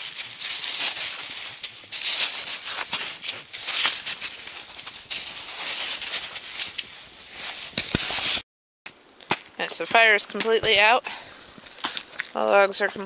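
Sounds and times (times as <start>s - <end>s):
snow sizzling on embers: 0.0s - 8.4s.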